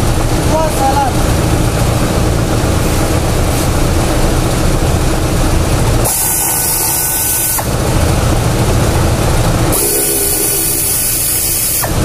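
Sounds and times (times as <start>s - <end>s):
compressed air blowing: 5.9s - 7.9s, 9.5s - 12.0s.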